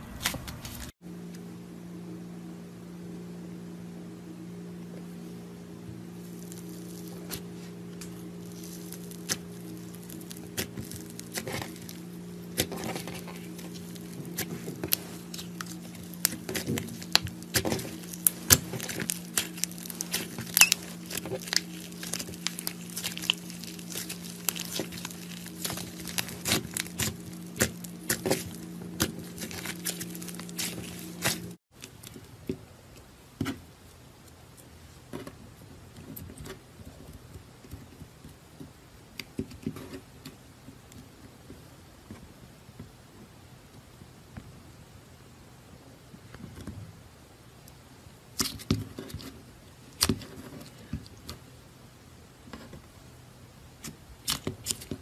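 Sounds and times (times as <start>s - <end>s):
slime sticky clicks and crackles: 15.3s - 31.5s.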